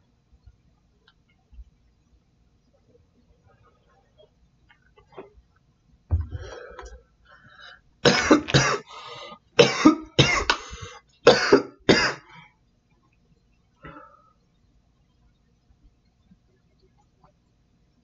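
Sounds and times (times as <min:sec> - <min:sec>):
man coughing harshly: 0:08.0 - 0:08.9, 0:09.6 - 0:10.6, 0:11.3 - 0:12.2.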